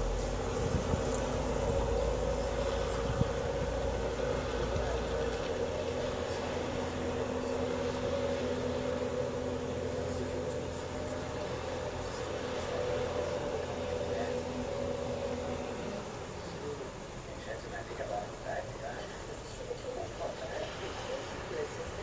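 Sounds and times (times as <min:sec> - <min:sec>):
low rumble: 0:00.0 - 0:07.5.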